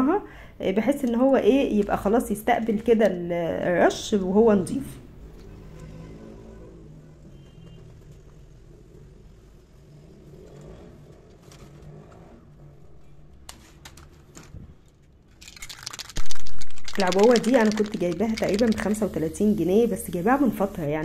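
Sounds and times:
spray can rattling: 0:15.4 - 0:19.4.

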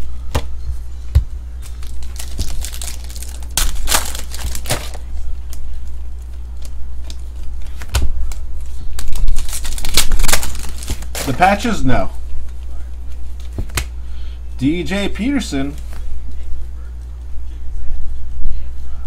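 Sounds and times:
foil wrapper crinkling and tearing: 0:01.6 - 0:05.7, 0:06.6 - 0:11.7.

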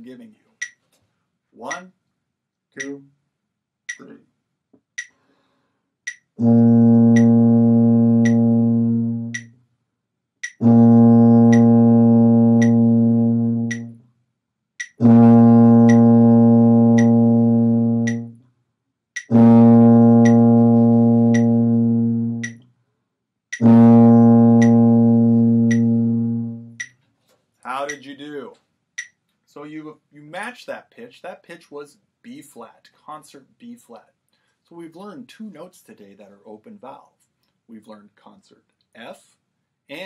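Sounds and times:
metronome clicking: 0:00.6 - 0:00.8, 0:01.7 - 0:01.9, 0:02.8 - 0:03.1, 0:03.9 - 0:04.2, 0:05.0 - 0:05.2, 0:06.1 - 0:06.4, 0:07.1 - 0:07.4, 0:08.2 - 0:09.6, 0:10.4 - 0:10.7, 0:11.5 - 0:11.8, 0:12.6 - 0:12.9, 0:13.6 - 0:14.0, 0:14.8 - 0:15.1, 0:15.8 - 0:16.2, 0:16.9 - 0:17.2, 0:18.0 - 0:18.4, 0:19.2 - 0:19.4, 0:20.2 - 0:21.7, 0:22.3 - 0:22.7, 0:23.5 - 0:23.7, 0:24.5 - 0:25.0, 0:25.6 - 0:27.0, 0:27.8 - 0:28.2, 0:29.0 - 0:29.2
tuba sustained note: 0:06.4 - 0:09.5, 0:10.6 - 0:14.0, 0:15.0 - 0:18.4, 0:19.3 - 0:22.6, 0:23.6 - 0:26.8.

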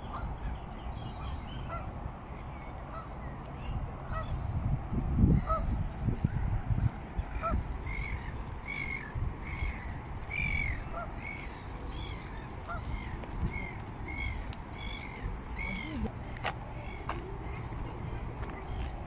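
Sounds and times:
bird harsh calls: 0:06.3 - 0:18.3.

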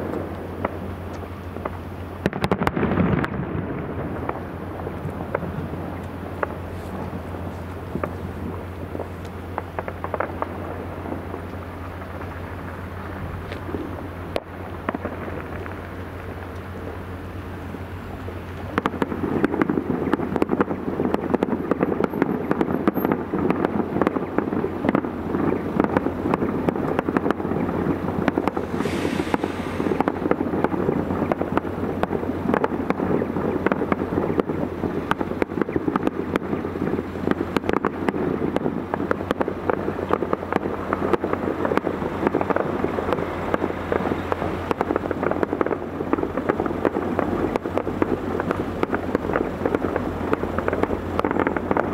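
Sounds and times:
distant fireworks bangs: 0:00.0 - 0:51.9
steady low hum: 0:00.0 - 0:51.9
brief hiss: 0:28.5 - 0:30.4.

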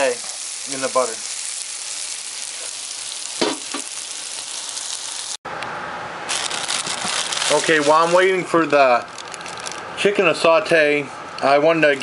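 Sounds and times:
vegetables sizzling in a skillet: 0:00.0 - 0:05.4, 0:06.3 - 0:09.6.

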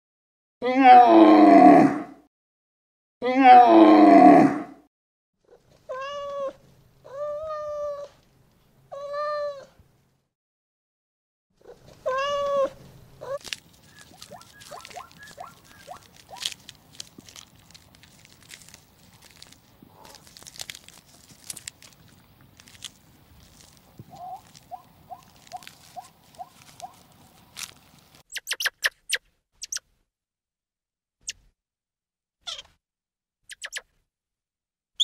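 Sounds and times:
kitten meowing: 0:12.0 - 0:13.4, 0:32.5 - 0:32.7
faint clicks and rustles: 0:12.8 - 0:28.2.

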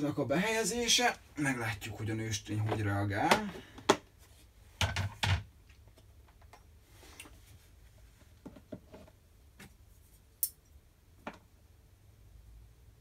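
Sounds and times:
plastic tub being handled: 0:02.3 - 0:05.3.

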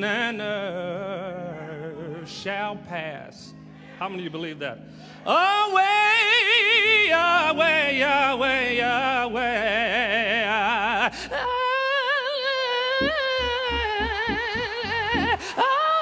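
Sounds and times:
man singing gospel: 0:00.0 - 0:16.0
low accompaniment: 0:12.9 - 0:15.6.

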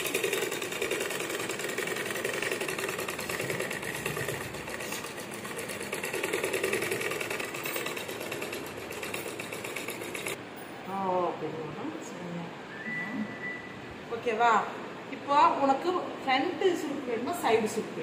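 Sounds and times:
sewing machine stitching: 0:00.0 - 0:10.4.

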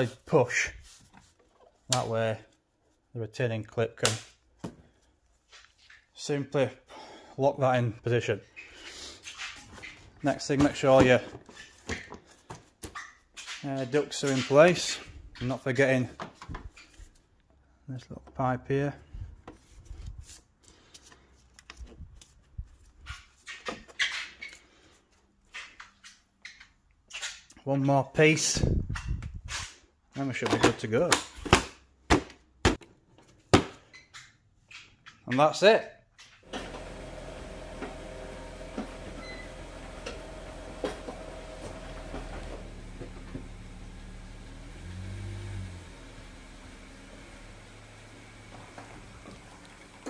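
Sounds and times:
car engine idling: 0:36.5 - 0:49.7
short squeaks: 0:39.1 - 0:39.7.

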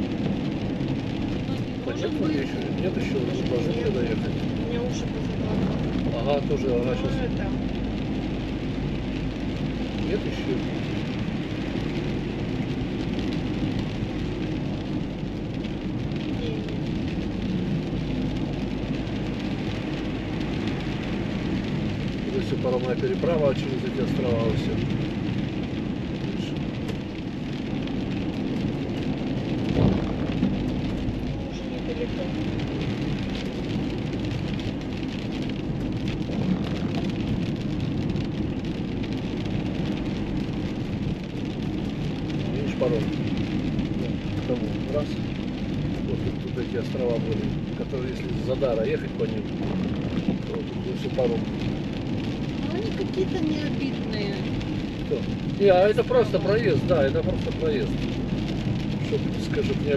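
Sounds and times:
car engine running: 0:00.0 - 0:59.9
tyre and road noise: 0:00.0 - 0:59.9
low hum: 0:24.7 - 0:57.0.

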